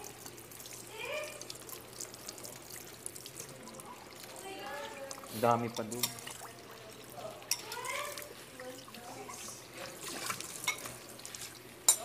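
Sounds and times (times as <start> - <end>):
water running at sink: 0.0 - 12.0
utensils clinking on cookware: 5.7 - 6.4, 7.2 - 8.3, 9.2 - 12.0.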